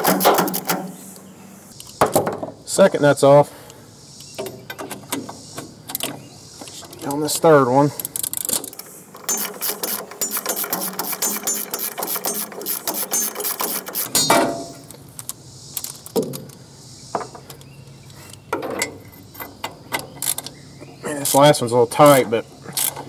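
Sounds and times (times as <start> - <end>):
hand ratchet clicking: 9.2 - 14.3.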